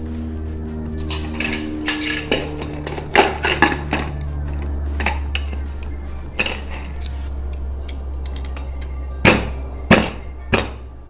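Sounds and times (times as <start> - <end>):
steady low hum: 0.0 - 11.0
sharp metal knocks: 8.2 - 10.9.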